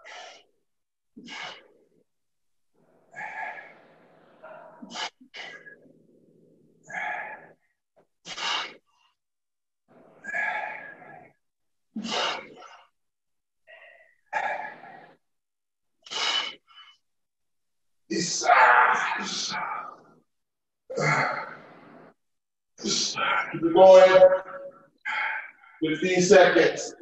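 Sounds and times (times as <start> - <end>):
person breathing forcefully: 6.9 - 9.0, 10.1 - 11.4, 12.0 - 12.9, 13.9 - 15.2, 16.0 - 16.9.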